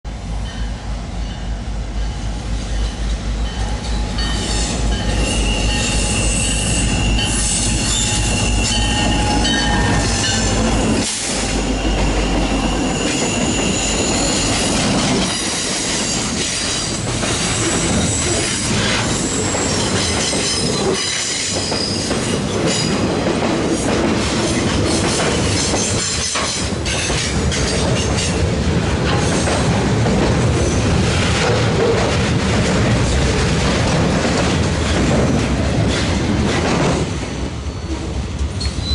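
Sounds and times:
diesel locomotive rumble: 0.1 - 38.9
train wheels rolling and squealing: 0.4 - 38.9
wheels clacking over rail joints: 7.0 - 37.3.

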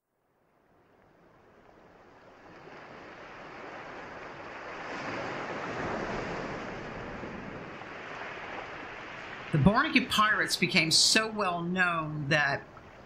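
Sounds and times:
ocean surf washing on beach: 0.7 - 13.0.

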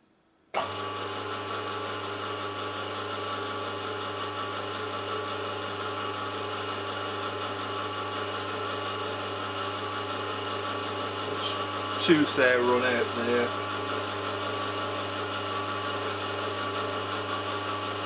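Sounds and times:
milling machine motor humming: 0.6 - 18.0.

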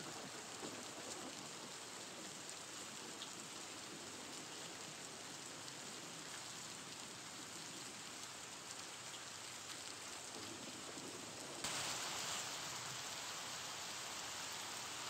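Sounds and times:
steady hiss: 9.9 - 15.0.

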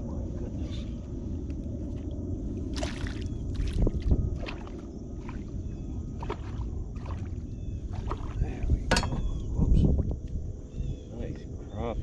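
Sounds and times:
wind rumbling on microphone: 0.0 - 12.0
water lapping at kayak hull: 1.9 - 8.9
fish splashing: 2.7 - 8.4.

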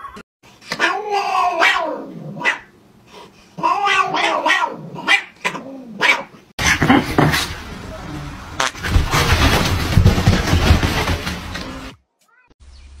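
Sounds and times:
cats yowling: 0.0 - 2.7, 3.6 - 6.3.

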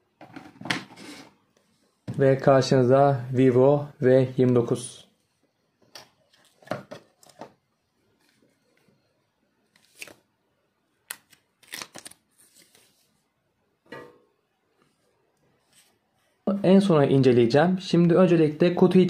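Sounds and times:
packaging rustles and clicks: 11.1 - 12.8.

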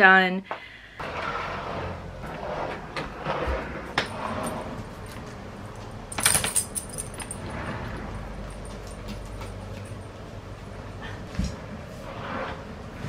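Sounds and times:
dog collar tags jingling: 6.1 - 7.6, 8.2 - 10.2.

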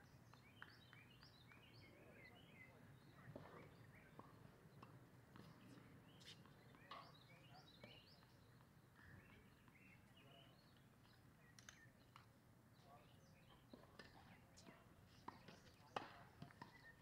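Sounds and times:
bird chirps and calls: 5.6 - 16.0.

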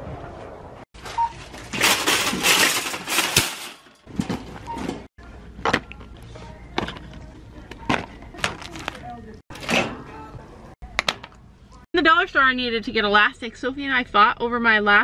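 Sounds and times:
wire shopping cart rattling: 1.0 - 5.1.

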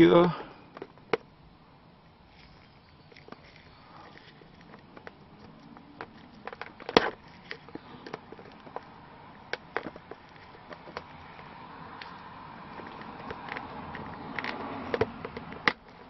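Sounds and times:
screwdriver scraping plastic cap: 3.2 - 12.2.

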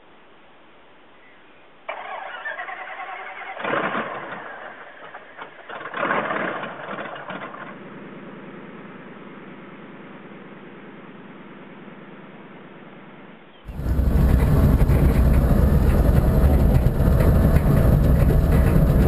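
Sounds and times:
aircraft engine cranking and starting: 1.9 - 7.8, 13.7 - 19.0
aircraft engine running: 13.7 - 19.0.

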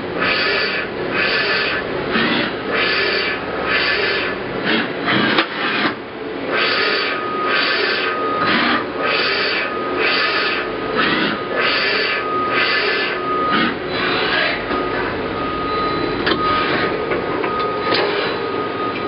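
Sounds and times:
servo whine: 0.0 - 19.0
machine hissing strokes: 0.2 - 14.6.

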